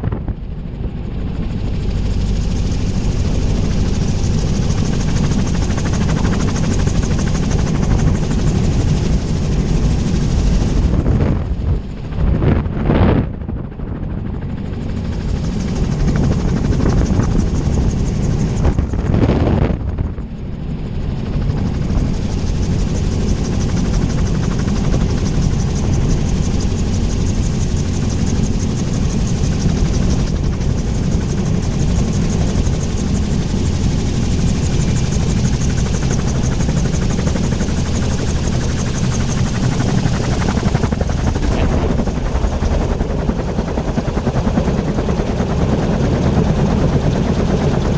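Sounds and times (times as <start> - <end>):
wind rush: 0.0 - 47.9
rotor noise: 36.8 - 43.2.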